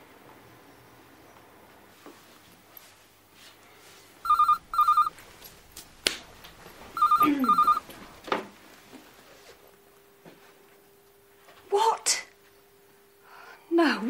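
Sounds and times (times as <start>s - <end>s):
telephone ringing: 4.2s - 5.2s, 6.9s - 8.0s.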